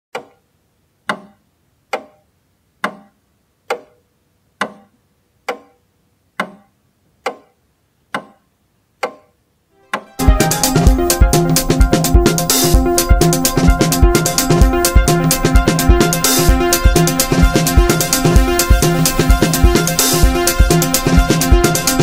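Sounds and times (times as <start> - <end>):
clock ticking: 2.8 - 4.0, 9.9 - 22.0
loud music with drums: 10.2 - 22.0.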